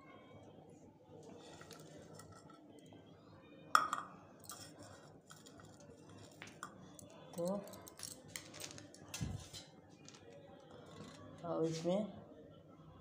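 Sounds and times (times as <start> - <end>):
steel bowls clinking: 3.8 - 8.7.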